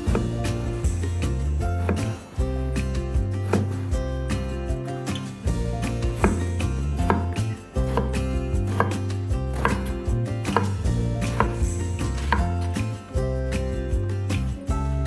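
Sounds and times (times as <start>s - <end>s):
knife dicing on wooden board: 3.4s - 3.8s, 6.2s - 11.6s, 12.2s - 12.8s.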